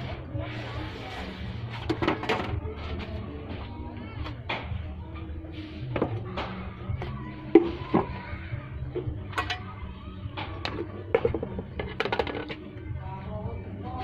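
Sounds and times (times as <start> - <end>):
kitchenware knocking and clinking: 9.3 - 9.7, 10.7 - 12.6.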